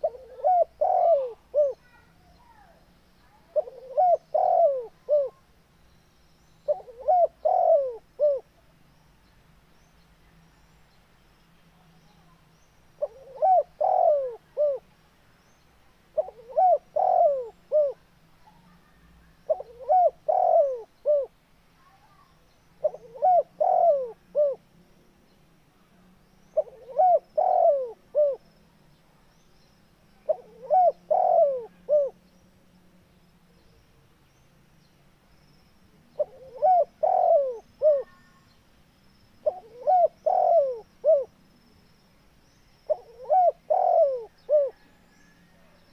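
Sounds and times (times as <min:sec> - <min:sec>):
dove cooing: 0:00.0 - 0:02.0, 0:03.5 - 0:05.4, 0:06.7 - 0:08.5, 0:13.0 - 0:14.9, 0:16.2 - 0:18.7, 0:19.5 - 0:21.3, 0:22.8 - 0:24.6, 0:26.6 - 0:28.5, 0:30.2 - 0:32.2, 0:36.1 - 0:38.4, 0:39.4 - 0:41.3, 0:42.9 - 0:45.8.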